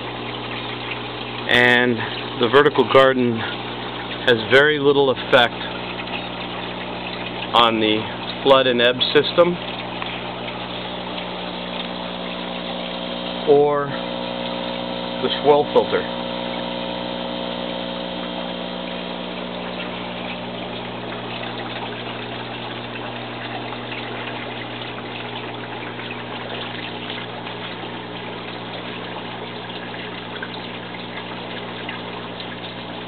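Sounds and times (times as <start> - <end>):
pump humming: 0.0 - 33.0
water running and splashing: 0.0 - 33.0.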